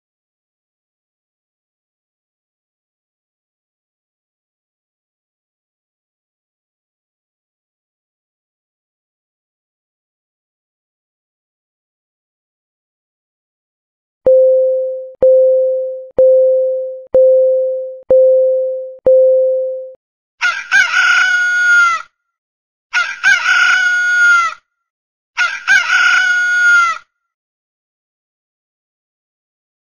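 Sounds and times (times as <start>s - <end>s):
timer beeping: 14.3s - 20.0s
rooster crowing: 20.4s - 22.0s.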